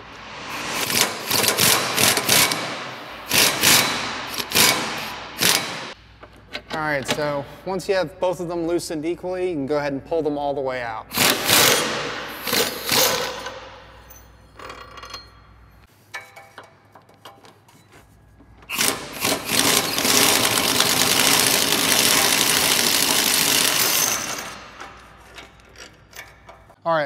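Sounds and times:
power tool spinning bolts: 0.8 - 5.9, 11.1 - 13.6, 18.6 - 26.8.

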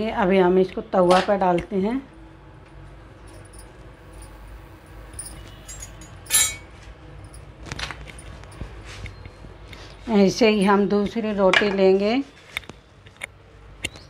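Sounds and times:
light metallic clinks: 3.2 - 4.5, 5.1 - 8.7
faint kitchen background: 9.8 - 12.6.

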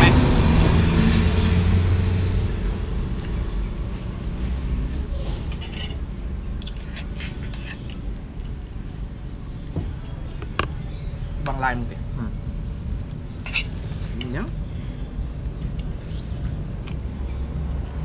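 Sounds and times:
vehicle engine passing: 0.0 - 6.5
low traffic hum: 0.0 - 18.0.

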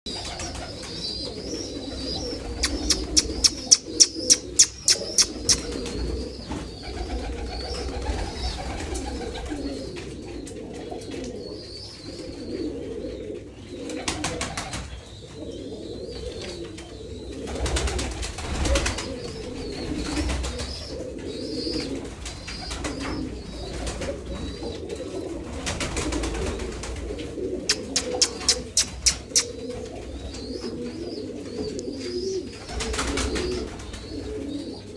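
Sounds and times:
pigeons cooing: 0.1 - 34.9
sharp rapid clicks: 2.6 - 5.7, 27.7 - 29.5.

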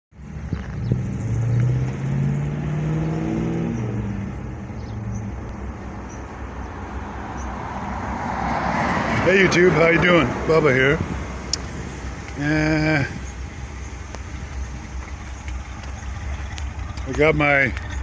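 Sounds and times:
road noise: 0.1 - 18.0
vehicle engine running: 3.7 - 18.0.

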